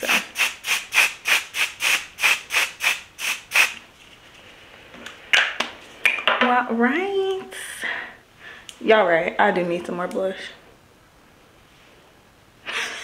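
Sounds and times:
quick hissing spray bottle sprays: 0.0s - 3.8s.

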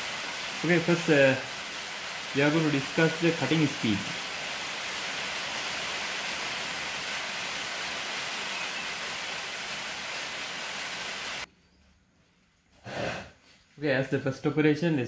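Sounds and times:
steady hiss: 0.0s - 11.5s.

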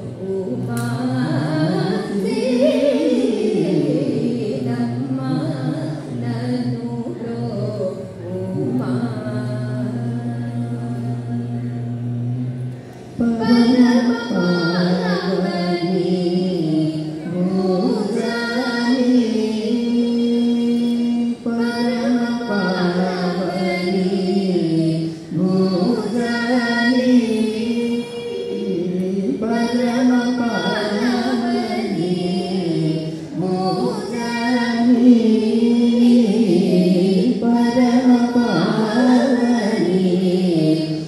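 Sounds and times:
group singing devotional song: 0.0s - 41.0s.

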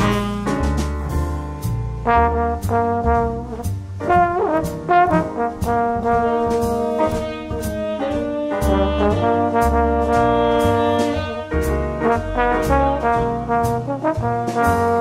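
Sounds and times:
jazzy brass music with beat: 0.0s - 15.0s.

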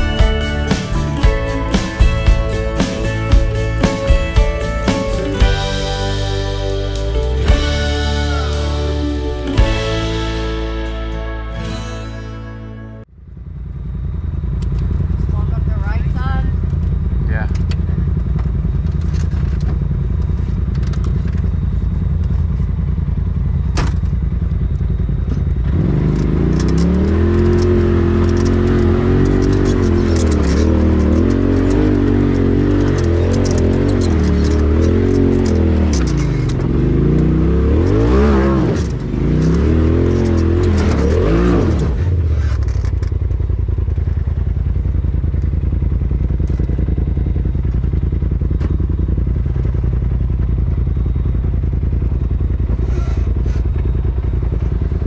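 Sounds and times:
off-road vehicle engine revving: 0.0s - 12.9s, 25.3s - 55.0s
clatter and scraping on rough trail: 16.7s - 23.0s, 23.9s - 55.0s.

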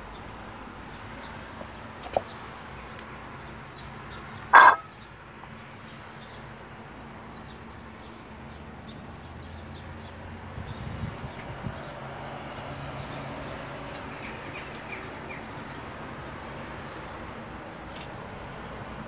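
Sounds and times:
birds chirping: 0.9s - 5.1s.

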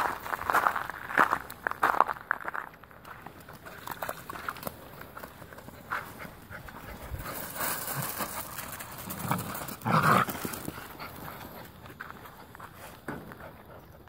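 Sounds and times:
puppies playing: 3.3s - 14.0s.

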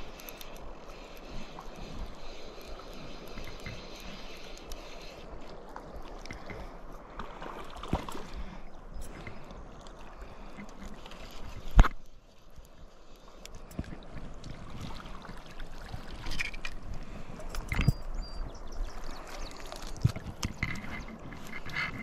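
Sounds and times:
river water flowing over gravel: 0.0s - 22.0s.

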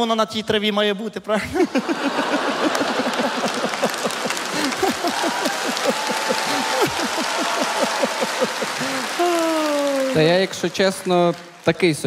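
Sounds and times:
audience laughing: 1.4s - 10.3s
audience clapping: 1.8s - 12.0s.

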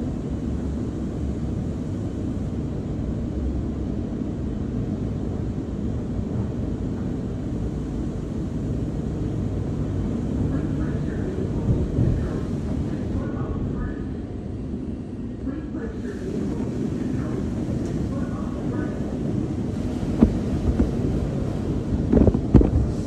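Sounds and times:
muffled car wash machinery rumble: 0.0s - 23.0s.

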